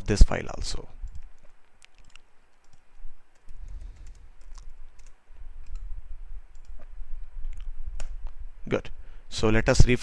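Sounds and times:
keyboard typing: 0:01.0 - 0:05.9, 0:06.5 - 0:06.9.

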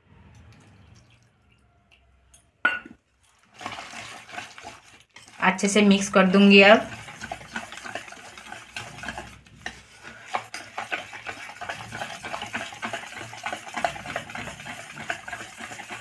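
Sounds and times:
whisk beating batter in bowl: 0:03.3 - 0:16.0.

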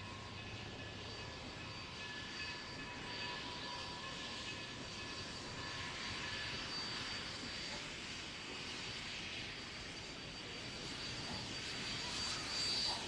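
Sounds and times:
distant steam locomotive rumble: 0:00.0 - 0:13.0.

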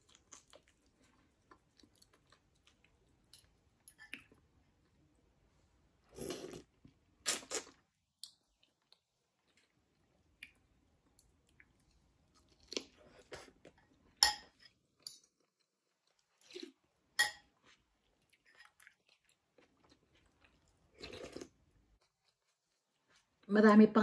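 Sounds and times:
chewing and mouth noises: 0:00.0 - 0:04.4.

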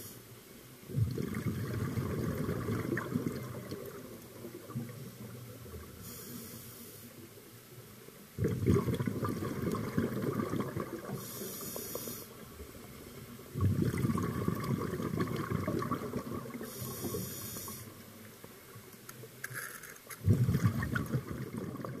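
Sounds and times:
bubbling exhaled air from regulator: 0:00.9 - 0:05.1, 0:08.4 - 0:12.4, 0:13.5 - 0:18.0, 0:20.2 - 0:22.0
demand valve hiss: 0:06.0 - 0:07.2, 0:11.2 - 0:12.4, 0:16.6 - 0:18.0.

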